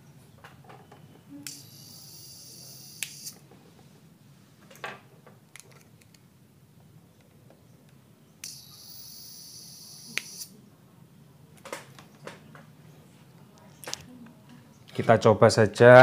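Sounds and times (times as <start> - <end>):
high hissing squeal from tv: 1.6 - 3.3.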